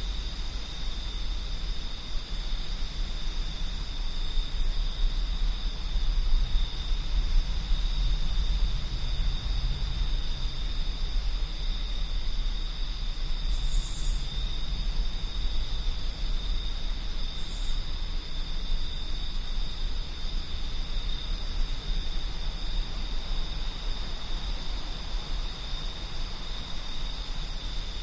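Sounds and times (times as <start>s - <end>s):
wind rumbling: 0.0s - 18.2s
crickets trilling: 0.0s - 28.0s
insect buzzes: 10.2s - 21.4s.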